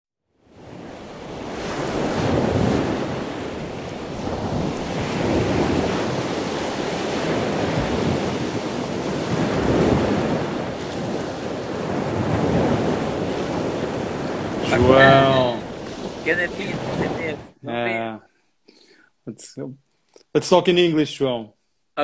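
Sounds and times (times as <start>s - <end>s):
ocean surf waves: 0.4s - 18.0s.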